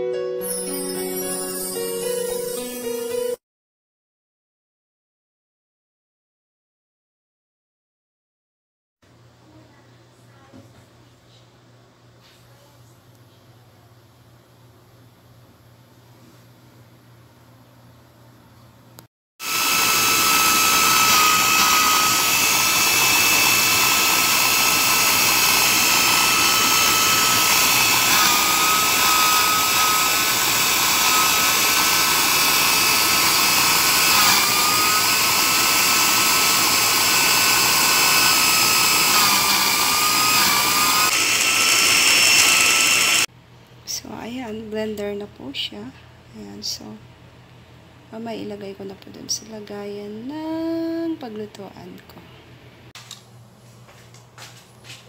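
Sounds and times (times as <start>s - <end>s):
electric blender motor whine: 19.4s - 43.3s.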